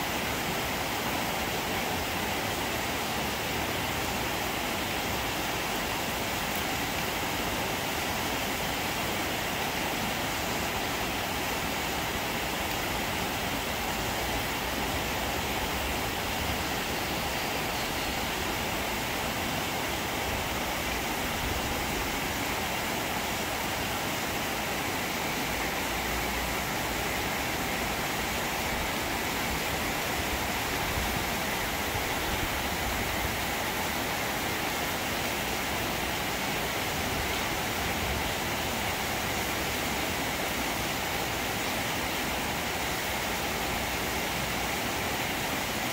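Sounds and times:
heavy rain on trees and metal: 0.0s - 45.9s.

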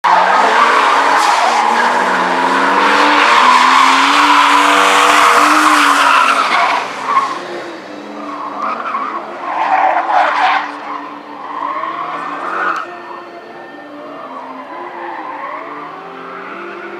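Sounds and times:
car engine revving: 0.0s - 12.7s.

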